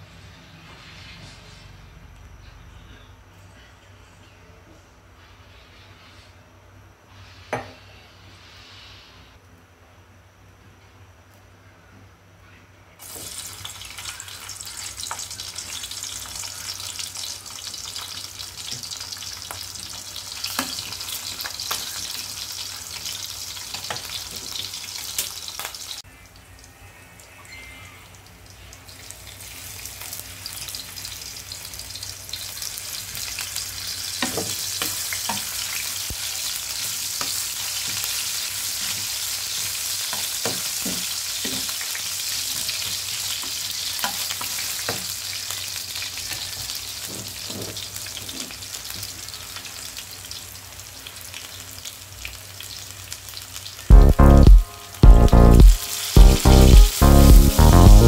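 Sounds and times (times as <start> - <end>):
garlic sizzling in hot oil: 13.0 - 26.0, 28.3 - 54.2, 54.9 - 58.0.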